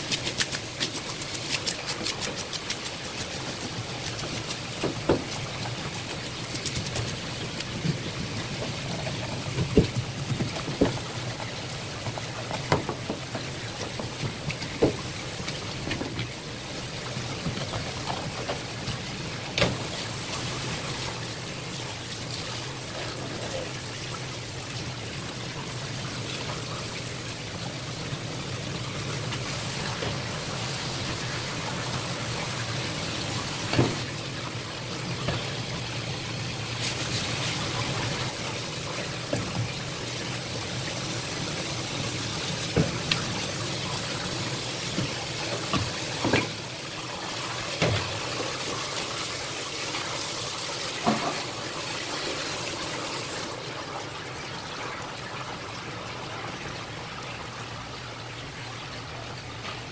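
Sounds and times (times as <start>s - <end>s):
tap water splashing: 0.0s - 20.1s, 33.2s - 34.2s, 35.0s - 35.6s, 36.8s - 40.4s, 42.4s - 44.2s, 44.8s - 46.6s, 47.7s - 48.8s, 50.9s - 51.6s.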